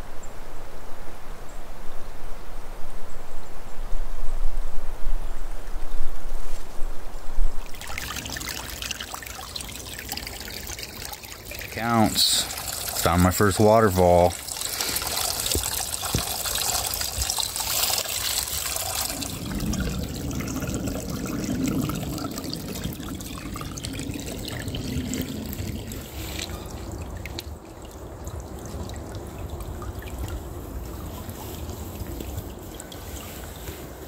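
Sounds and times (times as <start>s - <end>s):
water splashing over rocks: 7.6s - 34.0s.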